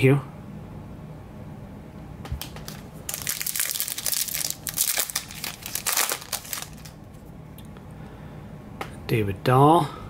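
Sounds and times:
foil wrapper tearing and crinkling: 2.4s - 7.0s.

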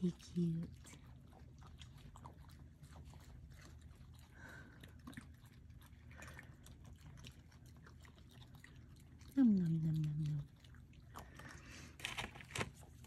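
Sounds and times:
animals crunching and chewing: 0.0s - 13.0s
low steady hum: 0.0s - 13.0s.

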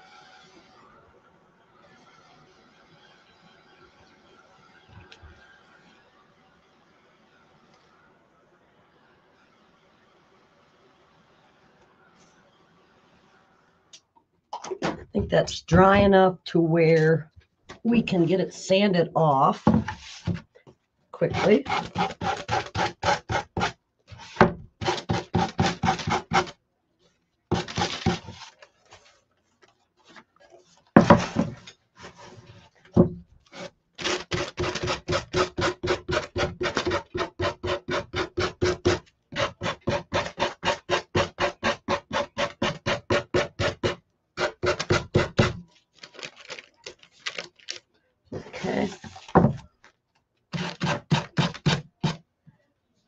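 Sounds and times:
sandpaper rubbing on wood: 21.3s - 26.5s.

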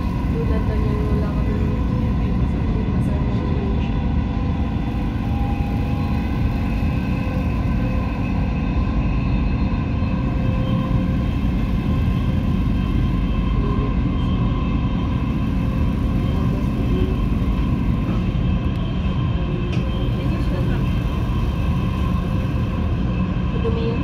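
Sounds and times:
running gear hum: 0.0s - 24.0s
train rumbling on track: 0.0s - 24.0s.

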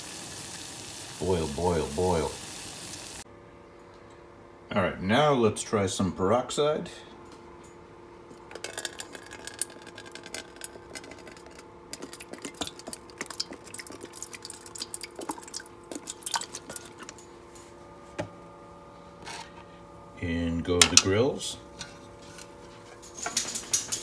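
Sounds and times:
liquid trickling into metal pot: 8.6s - 17.2s.

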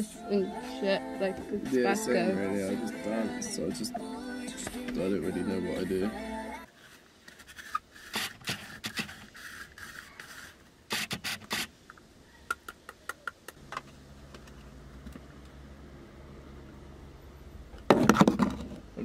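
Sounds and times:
handling scrapes and clicks in car: 17.9s - 18.9s.

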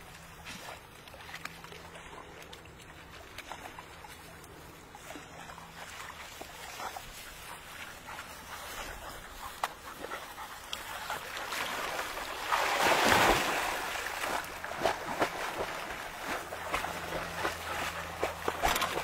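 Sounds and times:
dogs paddling in water: 0.0s - 19.0s
dog splashing into water: 11.4s - 19.0s.

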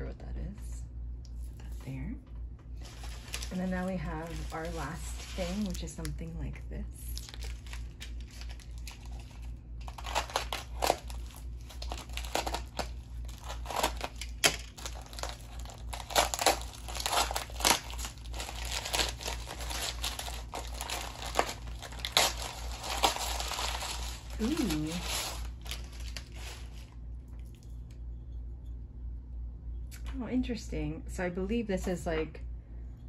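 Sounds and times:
packaging crinkling: 2.7s - 27.6s.

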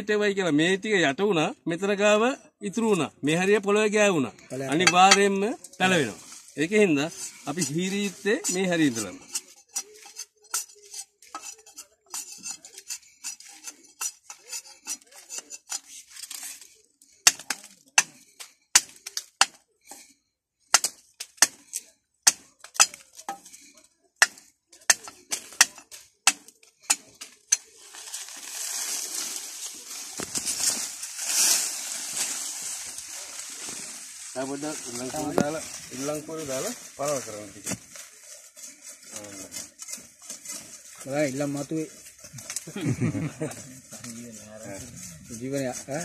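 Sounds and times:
rustle of leaves and brush: 4.5s - 19.2s, 25.2s - 46.0s.

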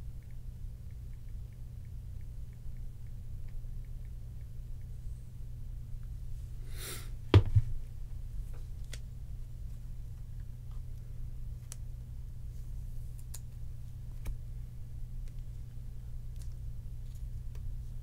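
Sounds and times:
knock on tabletop: 7.3s - 7.7s
light clicks of cards: 8.5s - 9.1s, 10.2s - 11.9s, 12.5s - 14.4s, 15.2s - 18.0s.

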